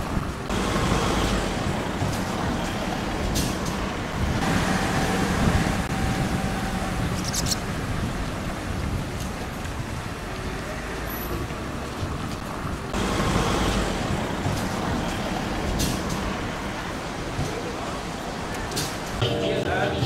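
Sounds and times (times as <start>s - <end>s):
steady whine: 0.0s - 8.3s
vehicle engines passing: 0.0s - 20.0s.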